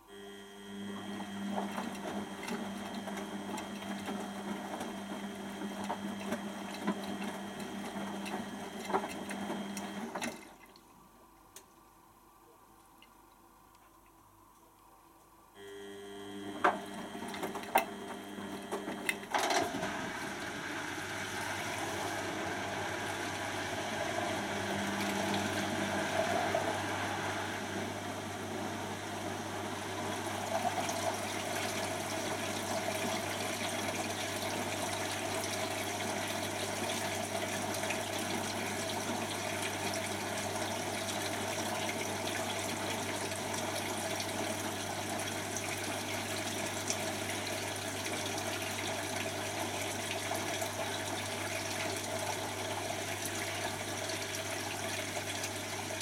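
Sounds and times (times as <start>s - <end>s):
drain pump humming: 0.0s - 13.3s, 15.6s - 56.0s
water rushing out: 19.7s - 32.9s.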